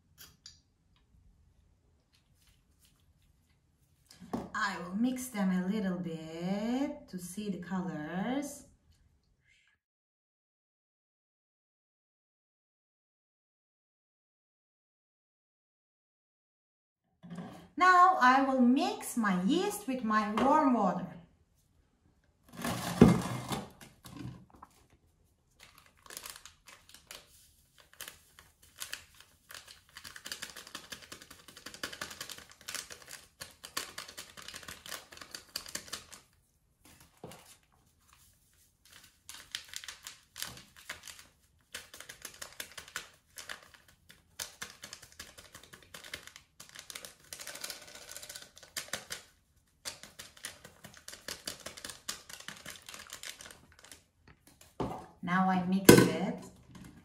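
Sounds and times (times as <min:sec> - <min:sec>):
packet crinkling: 0:24.6 - 0:54.8.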